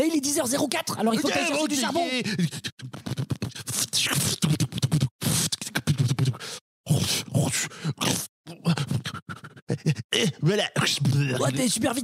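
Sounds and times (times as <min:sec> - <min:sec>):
beatbox mouth clicks and hisses: 0:02.7 - 0:06.6.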